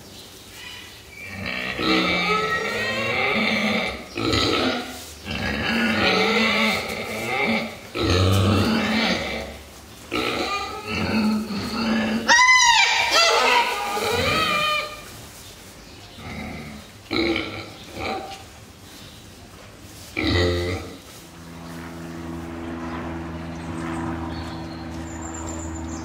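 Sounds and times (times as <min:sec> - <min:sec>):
pig call rising and falling: 0:01.2 - 0:04.9, 0:10.2 - 0:15.0
pig grunting: 0:01.2 - 0:12.4, 0:16.2 - 0:18.5, 0:20.1 - 0:21.1.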